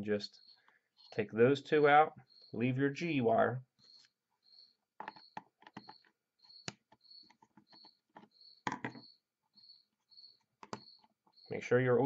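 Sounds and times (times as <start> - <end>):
plastic and wire clicks: 10.6 - 10.9.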